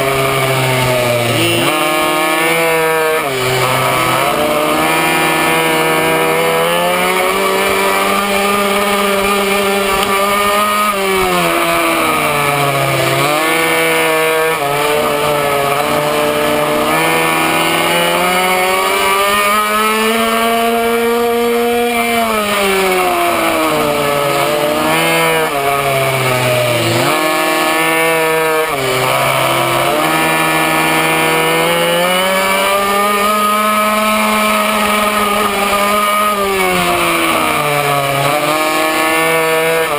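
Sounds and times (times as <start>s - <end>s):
small two-stroke engine revving: 0.0s - 39.9s.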